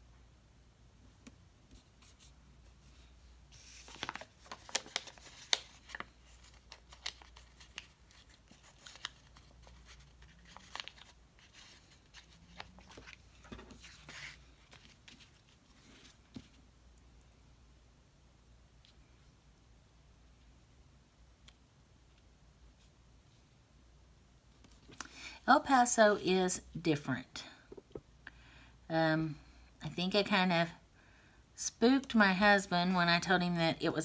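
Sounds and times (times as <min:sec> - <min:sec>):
paper rustling and crinkling: 0:03.5 - 0:16.6.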